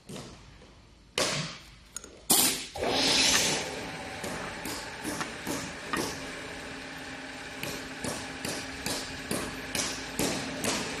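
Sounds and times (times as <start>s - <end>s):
pneumatic screwdriver hissing: 2.3s - 3.6s
low machine hum: 2.8s - 11.0s.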